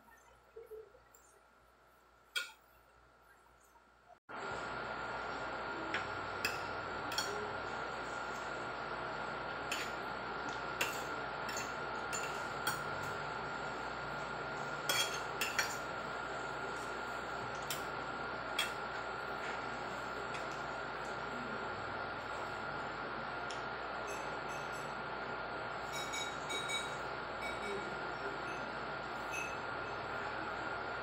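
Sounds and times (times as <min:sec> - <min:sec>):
faint high hum: 0:00.0 - 0:31.0.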